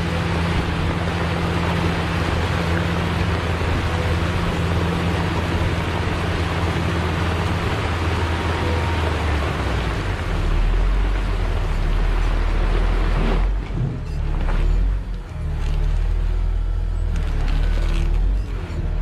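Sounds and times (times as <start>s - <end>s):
diesel engine droning: 0.0s - 19.0s.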